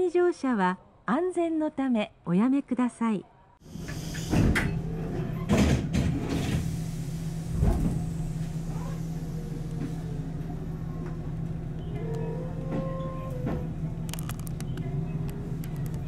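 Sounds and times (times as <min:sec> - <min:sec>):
electric train low hum: 0:03.6 - 0:16.0.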